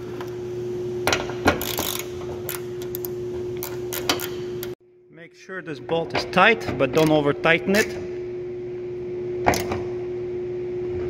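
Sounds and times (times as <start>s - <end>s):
steady hum: 0.0s - 11.0s
ratchet pawl clicking: 1.6s - 4.3s.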